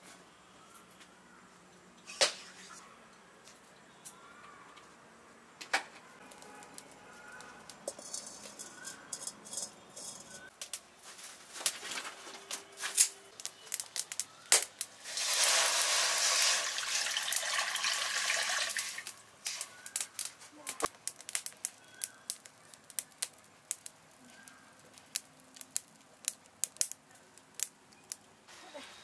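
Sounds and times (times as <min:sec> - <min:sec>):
wood fire crackling: 0:06.2 - 0:29.0
water poured into a wok: 0:15.0 - 0:19.6.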